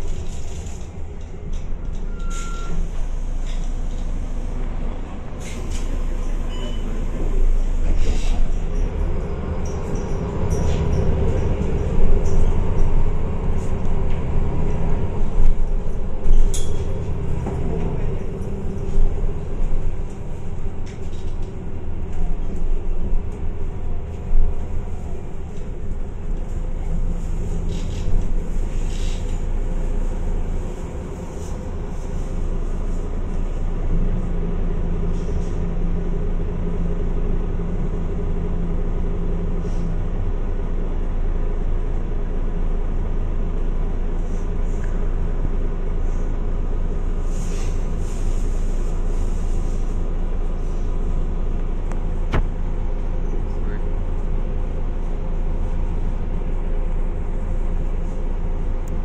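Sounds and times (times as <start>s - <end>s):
bus engine drone: 0.0s - 59.0s.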